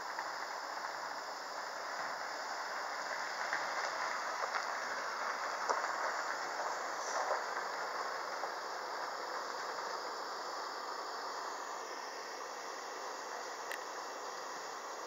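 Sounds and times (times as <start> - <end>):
gas soldering iron hissing: 4.2 - 15.0.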